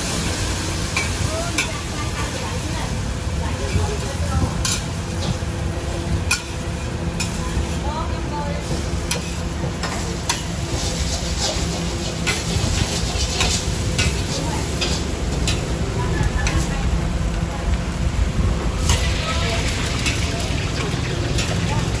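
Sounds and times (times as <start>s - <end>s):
noodles sizzling on a griddle: 0.0s - 22.0s
metal spatula scraping and tapping: 9.1s - 15.6s
low hum: 15.1s - 21.9s.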